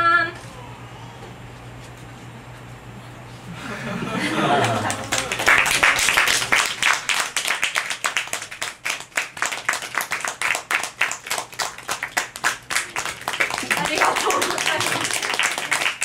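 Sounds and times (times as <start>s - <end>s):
audience clapping: 4.3s - 16.0s.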